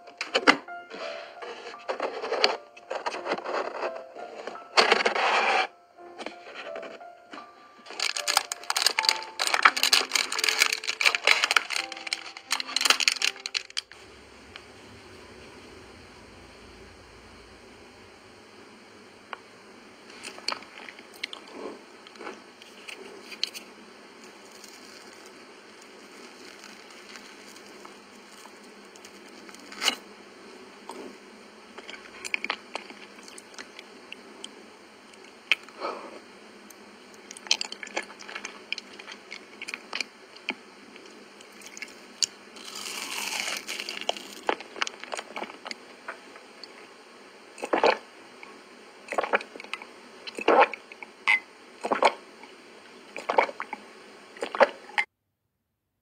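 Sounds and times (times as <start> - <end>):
faint hiss: 13.8 - 37.3
wet chewing sounds: 47.6 - 48.0, 49.1 - 51.0, 51.8 - 52.2.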